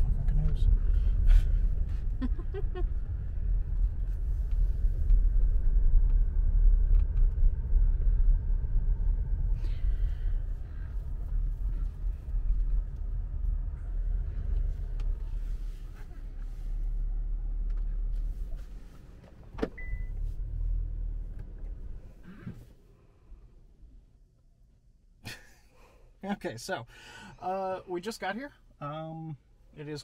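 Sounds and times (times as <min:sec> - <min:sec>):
car engine and tyre rumble: 0:00.0 - 0:30.0.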